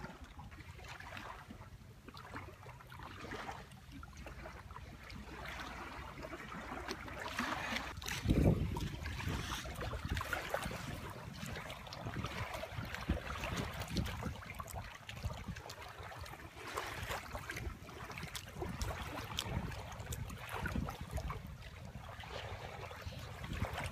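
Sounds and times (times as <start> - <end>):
waves lapping on rocks: 2.3 - 23.9
wind on microphone: 7.8 - 15.8, 17.0 - 23.9.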